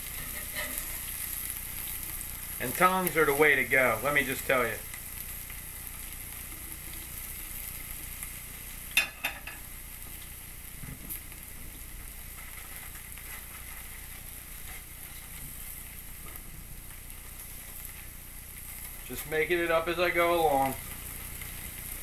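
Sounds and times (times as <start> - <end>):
steaks sizzling on grill pan: 0.0 - 22.0.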